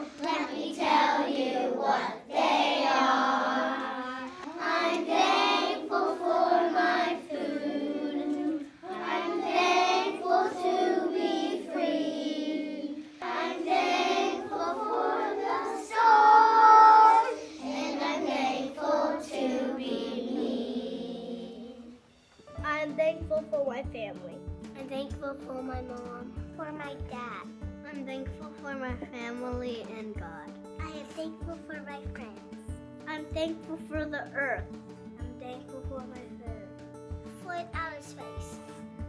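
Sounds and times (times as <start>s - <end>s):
children singing in unison: 0.0s - 22.0s.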